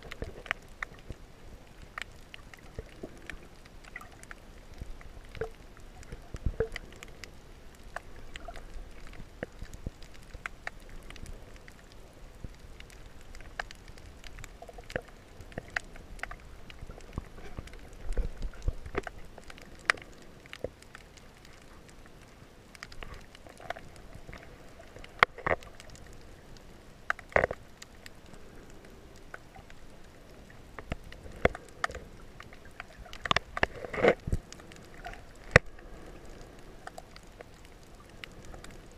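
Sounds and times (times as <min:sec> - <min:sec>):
underwater rumble of moving water: 0:00.0 - 0:38.9
underwater clicks and knocks: 0:02.0 - 0:07.3, 0:13.3 - 0:20.8, 0:22.8 - 0:26.1, 0:27.0 - 0:27.6, 0:30.8 - 0:35.8.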